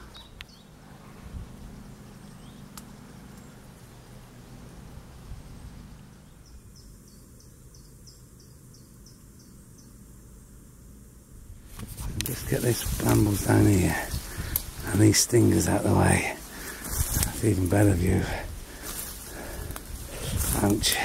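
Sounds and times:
steady low rumble: 0:00.0 - 0:07.4, 0:10.0 - 0:21.0.

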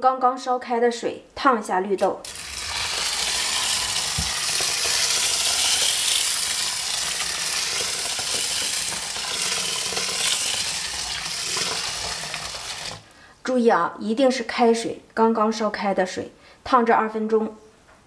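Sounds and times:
water pouring into metal bowl: 0:02.3 - 0:13.1.

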